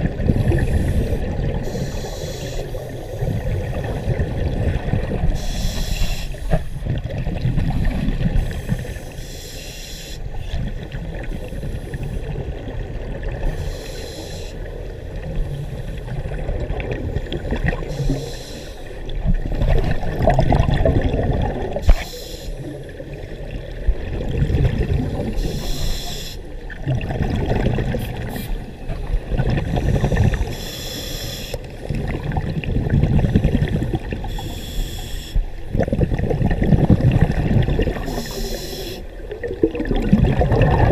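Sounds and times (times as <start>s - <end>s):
exhaled bubbles burbling: 0.0s - 1.9s, 3.2s - 5.4s, 6.4s - 9.0s, 15.1s - 18.2s, 19.0s - 22.0s, 22.7s - 25.7s, 26.6s - 30.5s, 31.7s - 34.3s, 35.6s - 40.9s
regulator inhale hiss: 0.5s - 4.2s, 5.4s - 6.8s, 8.4s - 10.6s, 13.5s - 14.8s, 17.8s - 19.1s, 21.7s - 23.1s, 25.3s - 26.7s, 29.8s - 31.7s, 34.2s - 35.7s, 38.0s - 39.2s.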